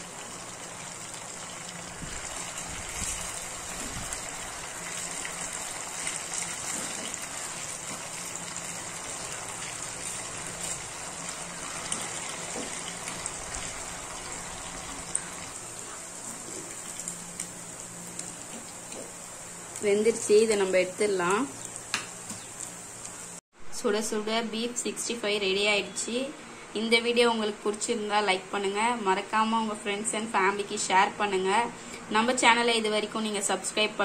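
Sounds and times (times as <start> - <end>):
oil sizzling and bubbling: 0.0 - 23.4.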